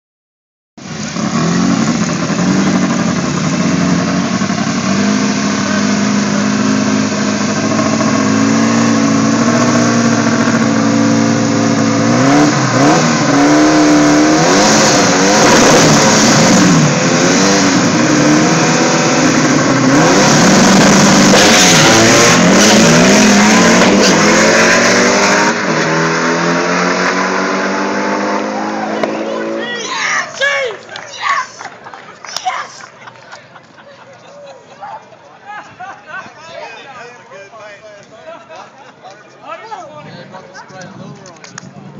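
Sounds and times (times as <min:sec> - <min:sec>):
drag car engine revving: 0:00.8 - 0:29.9
second drag car engine: 0:00.8 - 0:31.0.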